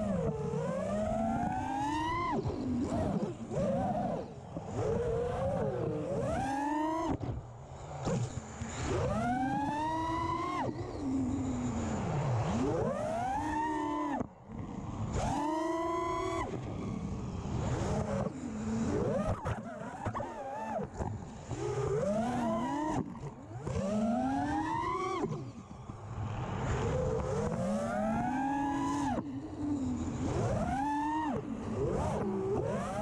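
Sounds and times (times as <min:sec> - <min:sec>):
drone motors whining: 0:00.0 - 0:33.0.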